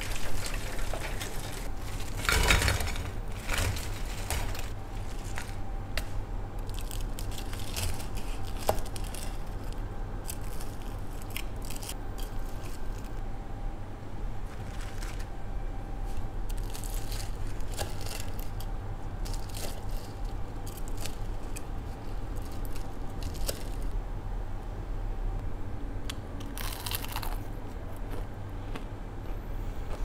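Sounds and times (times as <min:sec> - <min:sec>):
crunchy bite: 0:26.4 - 0:28.2.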